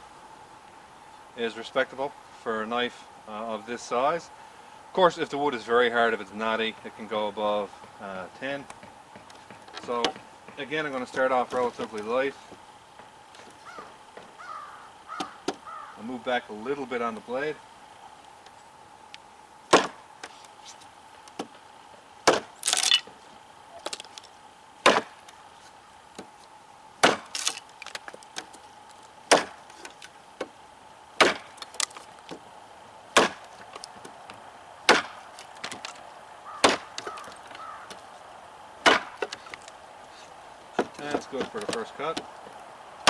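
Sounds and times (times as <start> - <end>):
knife chopping into wood: 19.7 - 20.0, 22.2 - 23.0, 24.8 - 25.2, 27.0 - 27.6, 29.3 - 30.5, 31.2 - 32.4, 33.2 - 34.1, 34.9 - 35.9, 36.6 - 37.3, 38.8 - 39.6
wood splintering: 19.7 - 21.5, 22.2 - 26.4, 27.0 - 32.5, 33.1 - 38.1, 38.8 - 42.6.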